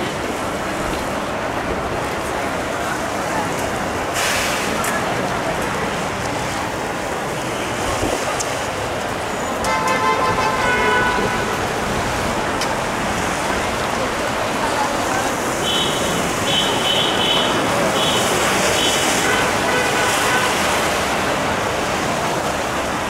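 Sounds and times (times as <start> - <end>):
street and engine noise: 0.0 - 23.0
fire truck air horn blast: 9.6 - 11.6, 15.6 - 20.7.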